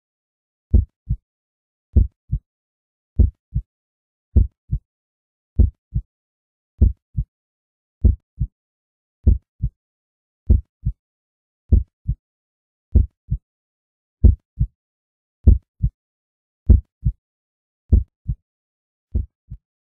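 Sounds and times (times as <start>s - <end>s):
heartbeat thumps: 0.7s - 1.2s, 2.0s - 2.4s, 3.2s - 3.6s, 4.4s - 4.8s, 5.6s - 6.0s, 6.8s - 7.3s, 8.0s - 8.5s, 9.2s - 9.7s, 10.5s - 11.0s, 11.7s - 12.2s, 12.9s - 13.4s, 14.2s - 14.7s, 15.4s - 16.0s, 16.7s - 17.2s, 17.9s - 18.4s, 19.1s - 19.6s.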